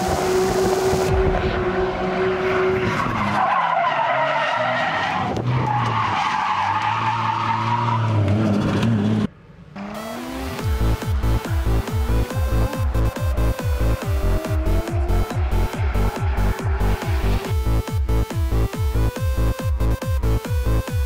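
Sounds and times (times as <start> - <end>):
car engine: 0.0 - 21.0
electronic music: 9.9 - 21.0.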